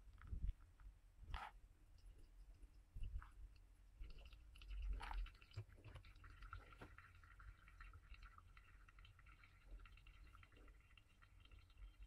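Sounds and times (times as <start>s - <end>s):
coffee crackling and dripping: 0.0s - 12.0s
water pouring onto coffee grounds: 4.0s - 12.0s.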